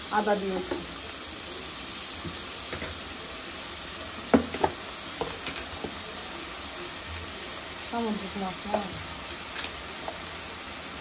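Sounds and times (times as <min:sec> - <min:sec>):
onions sizzling in oil: 0:00.0 - 0:11.0
metal knocks on pot: 0:04.3 - 0:05.9.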